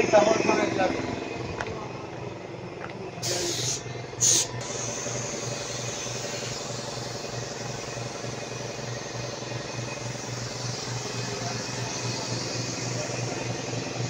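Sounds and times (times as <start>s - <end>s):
paint spray hiss: 3.2s - 14.0s
spray gun air bursts: 3.2s - 14.0s.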